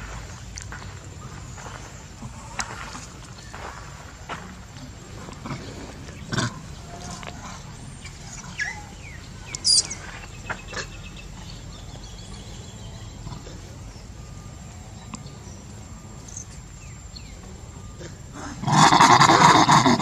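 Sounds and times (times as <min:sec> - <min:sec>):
high-pitched animal calls: 0:05.4 - 0:20.0.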